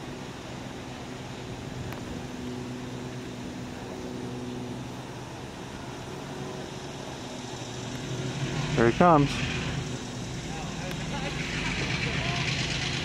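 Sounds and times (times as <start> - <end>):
locomotive diesel engine running: 0.0 - 13.0.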